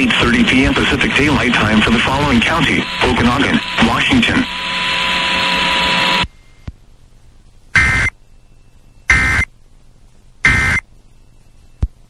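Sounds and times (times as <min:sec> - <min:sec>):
steady noisy hiss: 0:00.0 - 0:12.0
warbling data bursts: 0:07.8 - 0:08.2, 0:09.1 - 0:09.5, 0:10.4 - 0:10.8.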